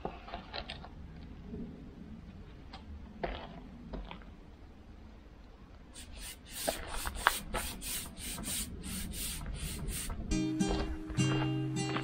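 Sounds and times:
brush rubbing oil onto timber: 6.0 - 10.2.

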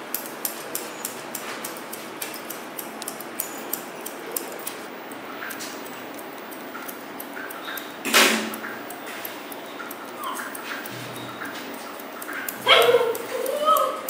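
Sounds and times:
steady background hiss: 0.0 - 14.0
dog whimpering: 10.1 - 11.6, 12.4 - 14.0.

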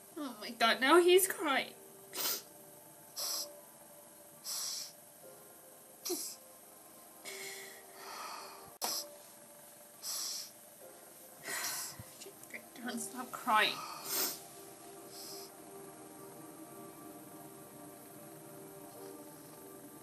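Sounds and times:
woman crying and sniffing: 13.7 - 14.5.

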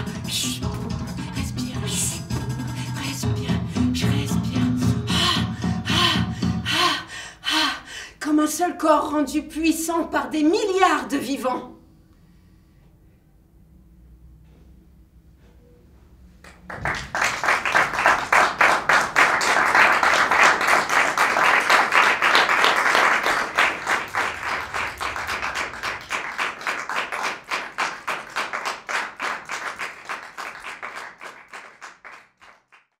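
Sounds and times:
audience applauding: 16.4 - 33.0.

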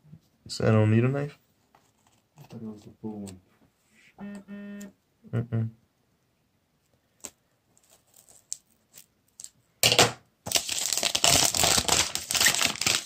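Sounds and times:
plastic wrap ripping: 7.2 - 9.5, 10.5 - 13.0
plastic film crinkling: 7.2 - 9.6, 10.5 - 13.0.

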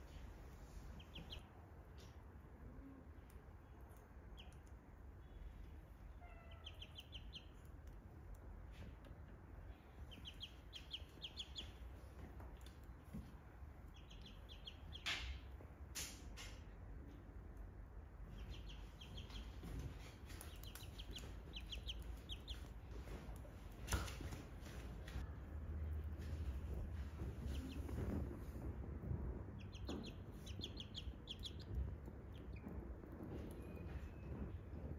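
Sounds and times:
faint low hum: 0.0 - 34.9
ducklings peeping: 0.8 - 1.5, 4.3 - 4.8, 5.4 - 8.0, 9.7 - 13.2, 13.8 - 15.5, 18.3 - 25.2, 26.4 - 28.6, 29.4 - 34.4.

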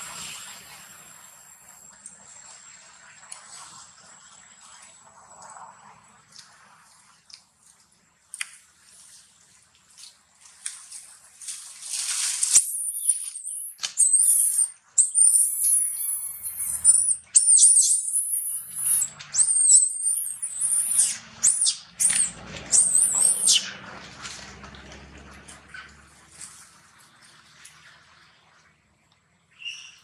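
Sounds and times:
young monkey screaming: 12.6 - 23.6.

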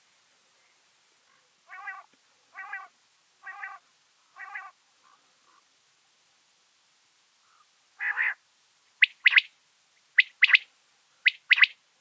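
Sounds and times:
quail calling: 1.7 - 5.6, 7.4 - 8.4, 9.0 - 9.5, 10.2 - 11.8.

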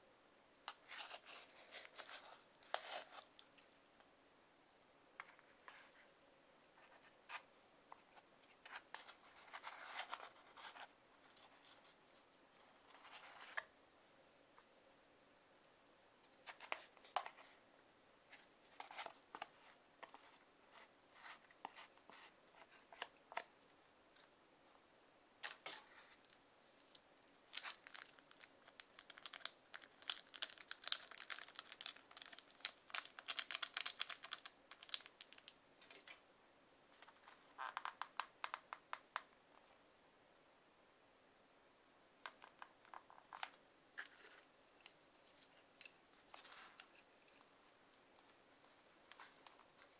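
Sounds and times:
sachet crinkling and tearing: 27.5 - 35.6
soft clicks and rustles: 42.2 - 49.9.

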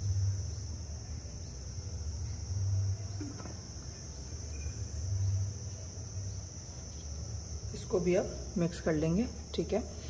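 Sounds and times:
insects chirring: 0.0 - 10.0.

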